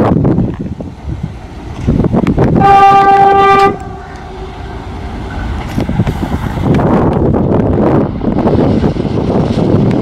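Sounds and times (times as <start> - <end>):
passing train rumble: 0.0 - 10.0
locomotive horn blast: 2.6 - 5.5.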